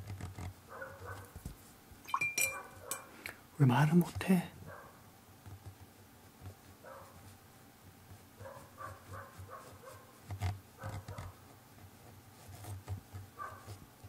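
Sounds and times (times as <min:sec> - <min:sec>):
distant dog barking: 0:00.7 - 0:01.3, 0:04.6 - 0:05.0, 0:06.8 - 0:07.2, 0:08.4 - 0:10.2, 0:10.8 - 0:11.4, 0:13.4 - 0:13.7.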